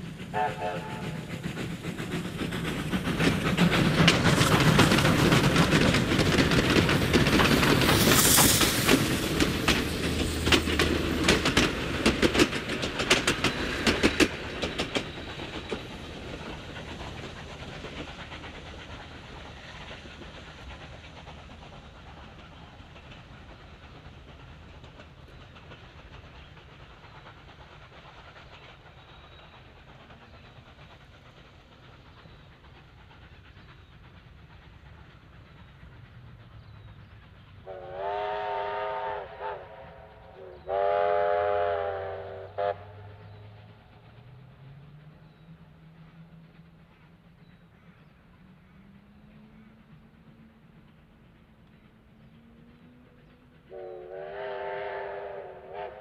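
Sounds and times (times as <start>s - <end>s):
wheels clicking over rail joints: 0.0s - 37.8s
steam train passing: 0.0s - 56.0s.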